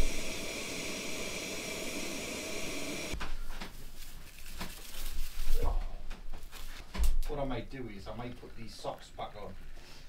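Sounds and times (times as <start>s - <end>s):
gas stove burner hissing: 0.0s - 3.3s.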